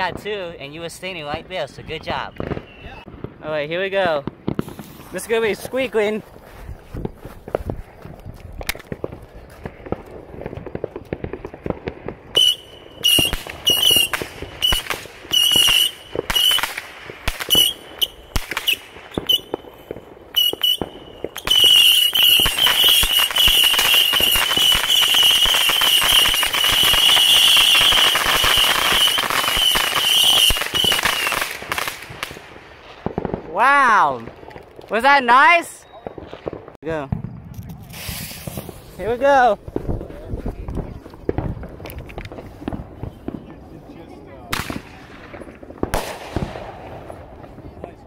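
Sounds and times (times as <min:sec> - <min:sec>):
whistling firework fountain: 0:01.1 - 0:03.1, 0:12.1 - 0:32.5, 0:35.1 - 0:43.9.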